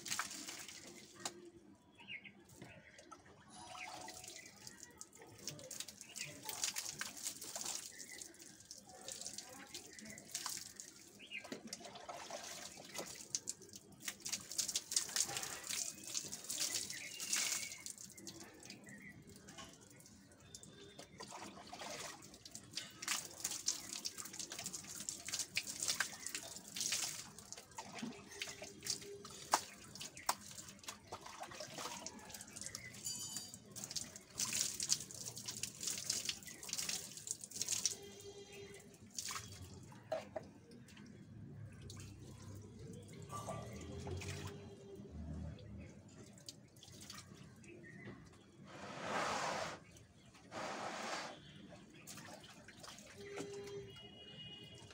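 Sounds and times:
water splashing on concrete floor: 0.0s - 1.5s, 2.5s - 41.0s.

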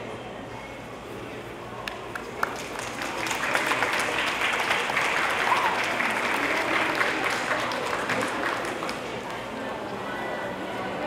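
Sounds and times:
crowd applauding: 2.1s - 9.6s.

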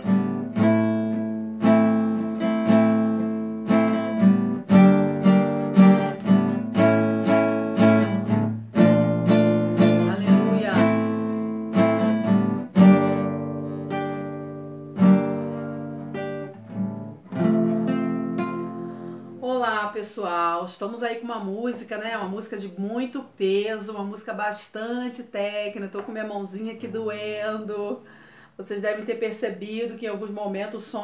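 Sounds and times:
acoustic guitar chords strummed: 0.0s - 19.4s.

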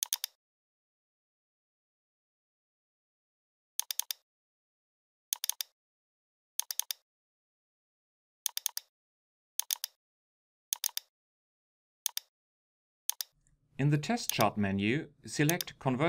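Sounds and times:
computer mouse double-clicks: 0.0s - 0.4s, 3.8s - 4.2s, 5.3s - 5.7s, 6.6s - 7.0s, 8.5s - 8.9s, 9.6s - 10.0s, 10.7s - 11.1s, 12.1s - 12.3s, 13.1s - 13.4s.

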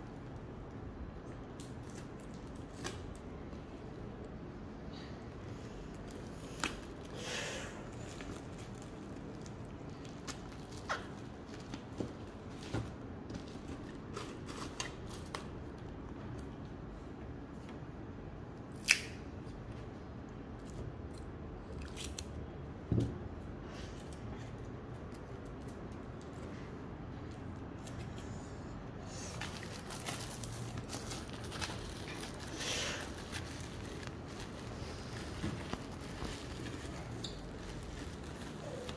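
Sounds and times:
bubble wrap crackles: 1.2s - 3.4s, 5.7s - 12.7s, 29.1s - 38.9s
bubble wrap crinkling: 5.9s - 12.7s, 29.1s - 38.9s.

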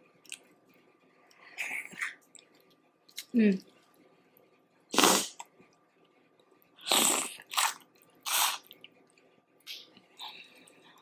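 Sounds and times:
person eating noisily: 4.9s - 5.6s, 6.8s - 11.0s.

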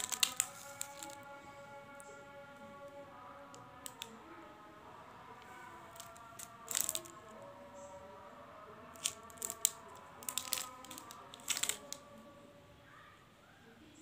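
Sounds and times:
cellophane wrappers crinkling: 0.0s - 1.4s, 3.8s - 4.1s, 5.5s - 7.3s, 8.9s - 12.1s
faint background music: 0.0s - 14.0s.

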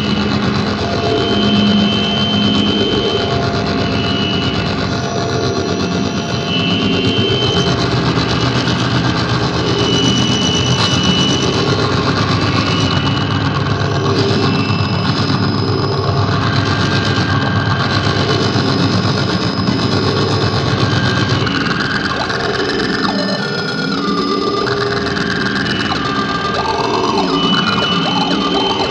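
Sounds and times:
low rumble: 0.0s - 22.7s
dense droning noise: 0.0s - 28.9s
held tones: 0.0s - 28.9s.

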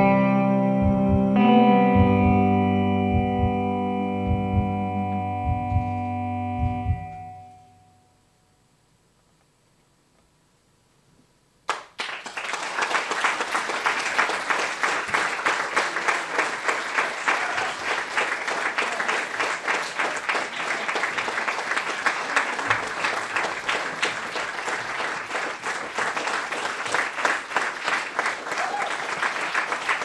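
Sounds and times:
audience applause: 11.7s - 30.0s.

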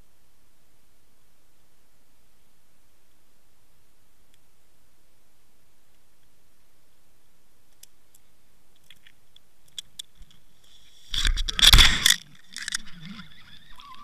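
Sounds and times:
faint clicks: 4.3s - 4.5s, 7.7s - 14.0s
camera scraping over rock: 10.6s - 14.0s.

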